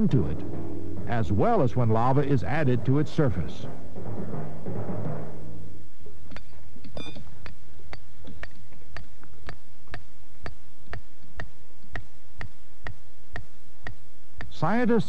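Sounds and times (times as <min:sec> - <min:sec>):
short beep: 0:07.0 - 0:07.2
clock-like ticking: 0:07.4 - 0:14.6.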